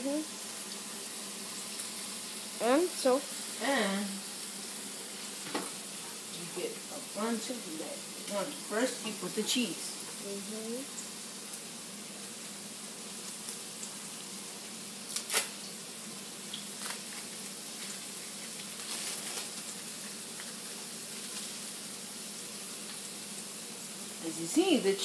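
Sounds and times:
meat sizzling in a pan: 0.0 - 25.0
plastic wrap crinkling: 16.6 - 20.6.

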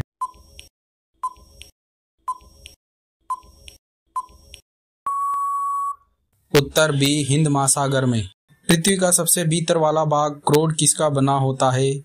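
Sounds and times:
high beep: 5.1 - 6.0.

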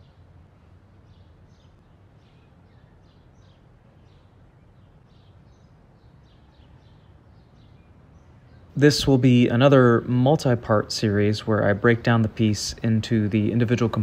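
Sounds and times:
low steady hum: 0.0 - 14.0
small birds chirping: 0.0 - 14.0.

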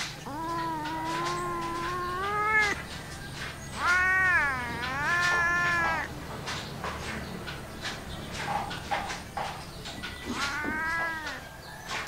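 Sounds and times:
cat meowing long: 0.2 - 2.9, 3.6 - 6.1, 10.3 - 11.5.

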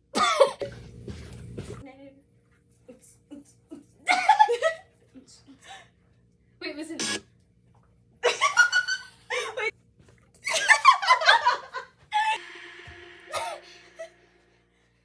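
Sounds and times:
steady held tone: 12.3 - 15.0.

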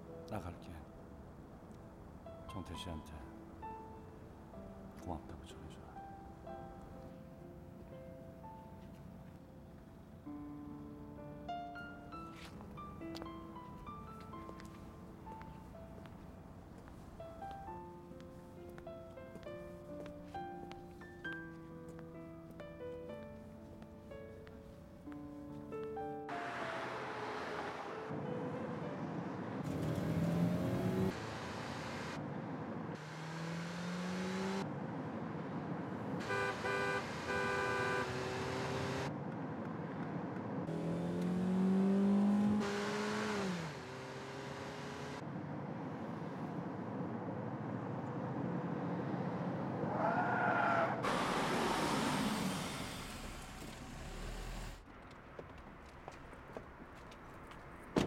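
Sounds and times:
car engines revving: 29.0 - 54.8
car horn blaring: 36.2 - 38.4
brakes squealing: 48.6 - 54.9.

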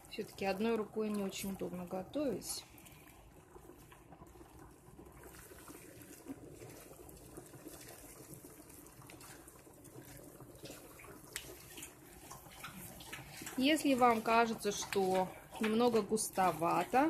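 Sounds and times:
spatula stirring thick sauce: 5.2 - 17.0.

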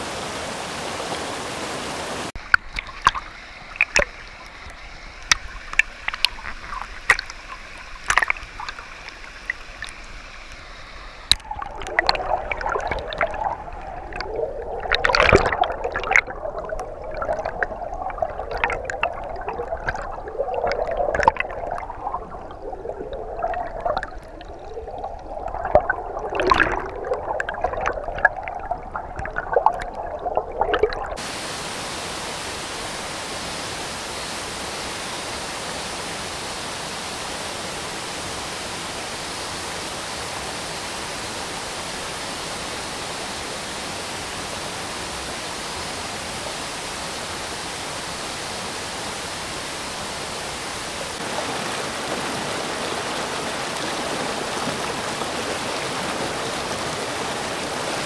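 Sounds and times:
stream rushing over boulders: 0.0 - 58.0
underwater clicks and pops: 2.4 - 31.2
underwater bubbling gurgle: 2.4 - 31.3.

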